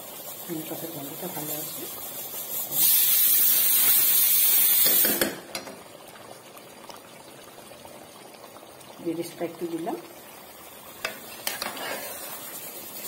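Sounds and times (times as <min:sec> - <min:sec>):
loud steady hiss: 0:00.0 - 0:05.4
steel spatula scraping a pan: 0:11.0 - 0:13.0.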